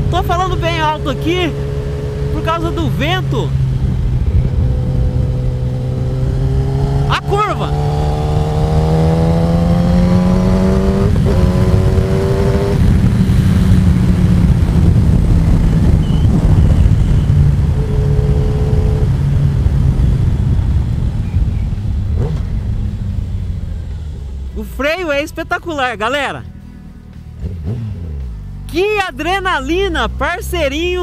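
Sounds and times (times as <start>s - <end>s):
motorcycle engine accelerating: 0.0s - 25.2s, 26.4s - 28.8s
wind buffeting microphone: 3.3s - 7.1s, 7.7s - 23.6s.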